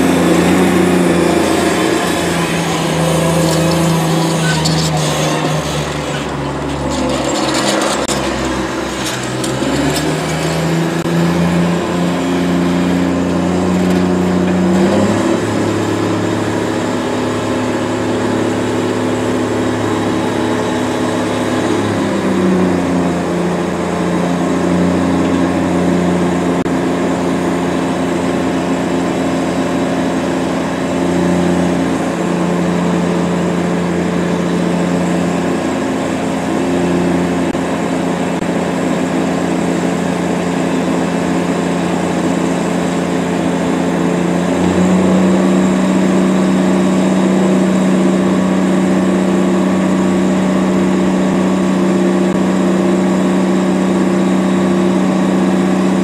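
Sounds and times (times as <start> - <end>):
vacuum tanker sucking slurry: 0.0 - 23.8
tractor engine running: 0.0 - 56.0.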